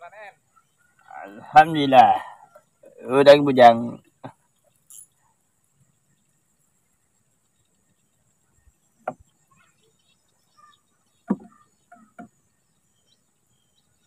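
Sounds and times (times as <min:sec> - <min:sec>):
faint high chirping: 0:00.0 - 0:14.0
knocks on wooden boat hull: 0:11.2 - 0:11.6.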